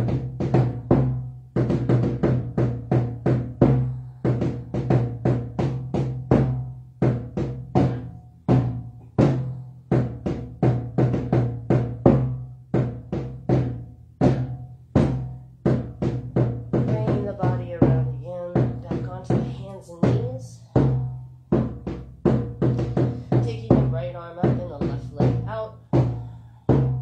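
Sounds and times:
hand drum strikes: 0.0 - 20.2.

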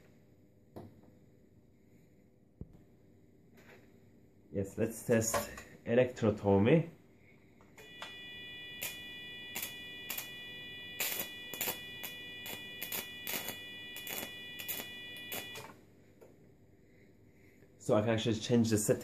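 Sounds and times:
sharp electrical arc snaps: 7.8 - 15.7
high steady activation tone: 7.8 - 15.8.

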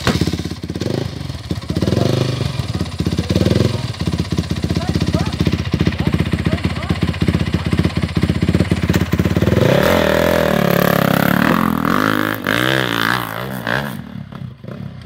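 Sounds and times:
dirt bike engine revving: 0.0 - 15.0.

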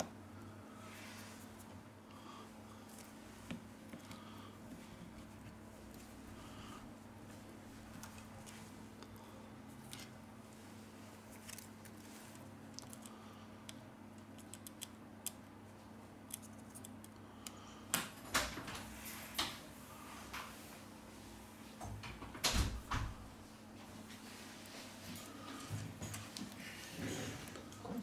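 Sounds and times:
faint steady hum: 0.0 - 28.0
fingers clicking and tapping phone parts: 12.7 - 15.4.

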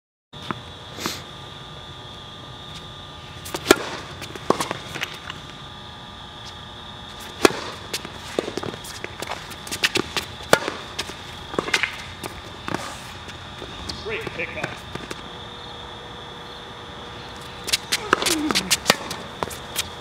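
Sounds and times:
tennis ball struck by rackets: 3.5 - 5.4, 7.2 - 12.9, 17.6 - 19.9.

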